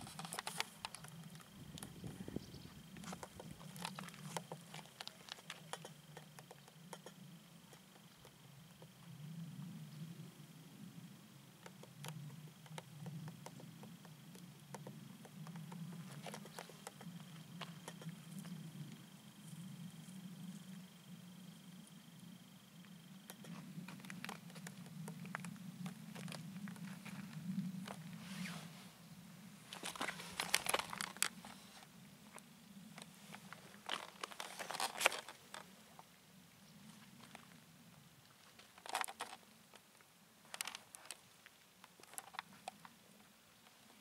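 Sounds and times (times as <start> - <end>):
cat paws crunching dry vegetation: 0.0 - 2.1, 2.7 - 6.8, 15.4 - 18.6, 23.3 - 28.6, 29.7 - 32.4, 33.0 - 35.8, 38.2 - 42.9
low steady hum: 0.0 - 44.0
kitten rustling in grass: 29.7 - 31.8.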